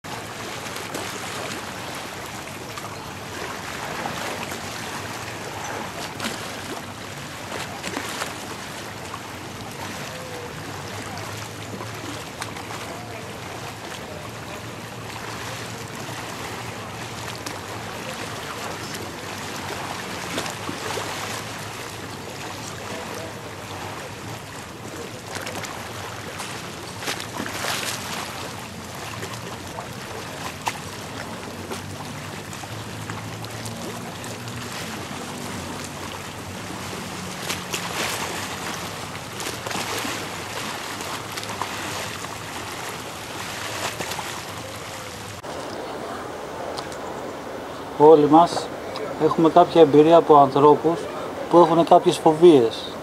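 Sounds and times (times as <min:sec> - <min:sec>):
water splashing against boat: 0:00.0 - 0:53.0.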